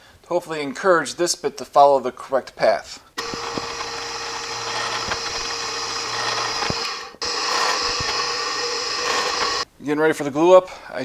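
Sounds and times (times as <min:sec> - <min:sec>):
drill press boring wood: 0:03.2 - 0:09.6.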